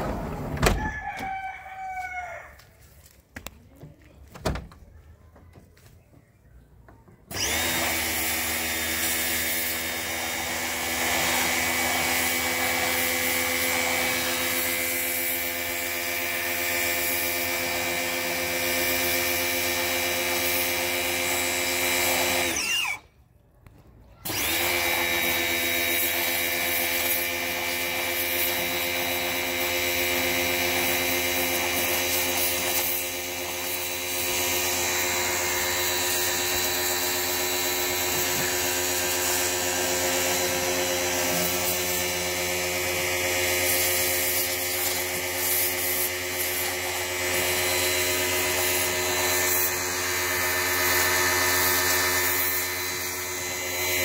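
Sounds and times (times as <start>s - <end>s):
pressure washer spraying: 7.5s - 22.9s, 24.6s - 54.0s.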